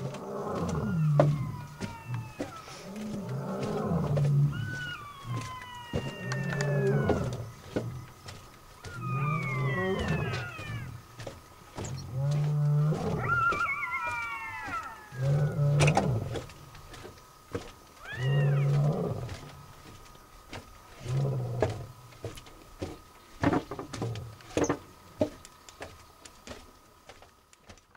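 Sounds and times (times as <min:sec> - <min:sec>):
lion roaring: 0:00.0 - 0:16.8, 0:18.0 - 0:19.7.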